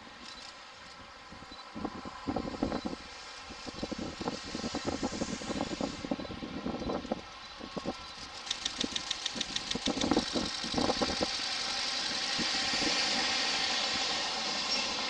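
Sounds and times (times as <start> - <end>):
train rolling noise: 0.0 - 15.0.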